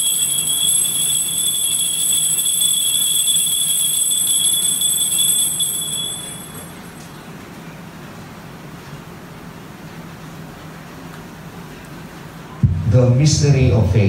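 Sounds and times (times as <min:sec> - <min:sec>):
altar bells ringing: 0:00.0 - 0:07.2.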